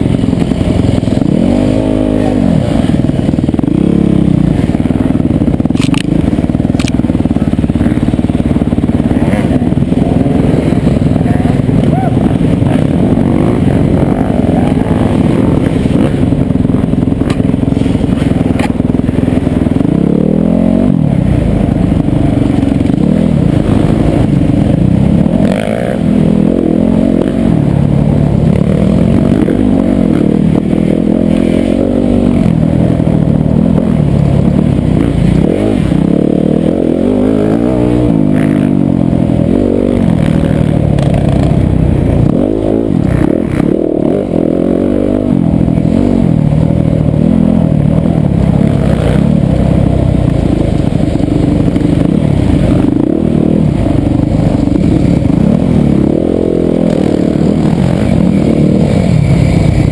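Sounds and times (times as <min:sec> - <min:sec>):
motorcycle engine revving: 0:00.0 - 0:59.9
motorcycle knocks and rattles: 0:02.8 - 0:14.0, 0:15.0 - 0:20.2, 0:40.0 - 0:42.4.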